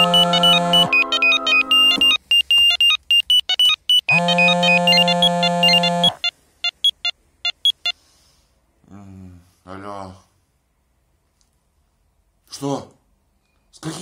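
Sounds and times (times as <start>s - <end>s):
smartphone ringtone melody: 0.0s - 7.9s.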